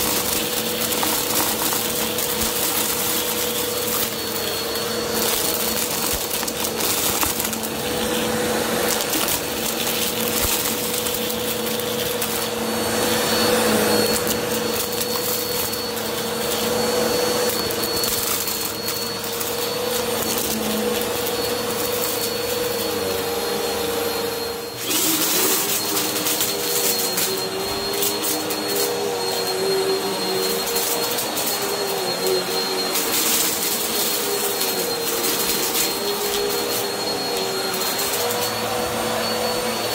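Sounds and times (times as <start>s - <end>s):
kernels clicking and rattling: 0.0s - 12.6s
vacuum cleaner motor whine: 0.0s - 39.9s.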